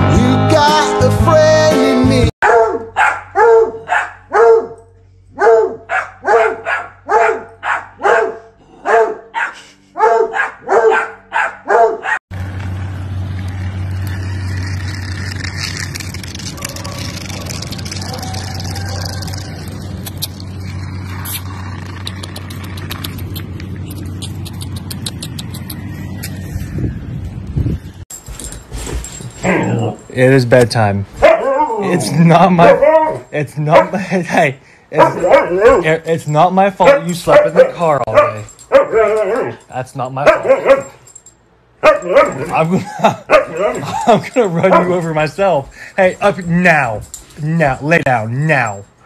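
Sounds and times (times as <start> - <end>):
dog barking: 2.4 - 4.8, 5.4 - 12.2, 31.2 - 31.8, 32.6 - 34.0, 35.0 - 35.9, 36.8 - 39.6, 40.2 - 41.0, 41.8 - 42.5, 43.3 - 43.9, 44.6 - 45.0.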